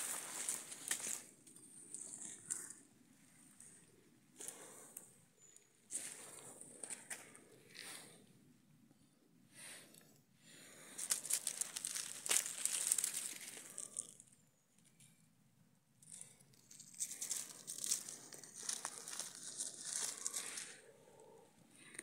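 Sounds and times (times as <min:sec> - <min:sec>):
dry leaves rustling and crackling: 0:00.0 - 0:01.3, 0:11.0 - 0:14.2, 0:17.0 - 0:20.8.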